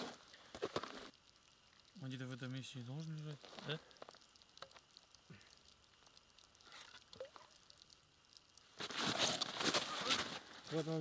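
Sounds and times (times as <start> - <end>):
faint clicks: 0.2 - 8.7.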